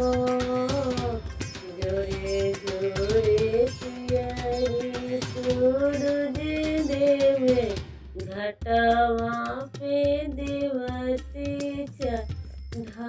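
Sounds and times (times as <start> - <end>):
person singing devotional song: 0.0 - 13.0
steady percussion beat: 0.0 - 13.0.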